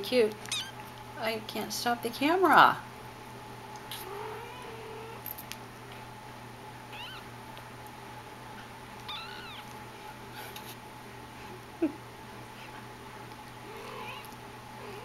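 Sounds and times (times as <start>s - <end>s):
kitten mewing: 0.5s - 0.8s, 6.9s - 7.3s, 9.1s - 9.7s, 13.6s - 15.0s.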